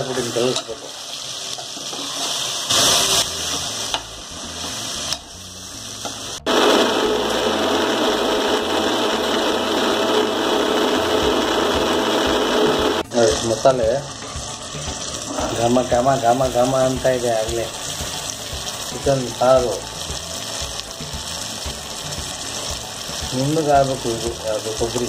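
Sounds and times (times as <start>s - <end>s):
masala sizzling in a pressure cooker: 0.0s - 25.0s
mixer grinder running: 6.4s - 13.1s.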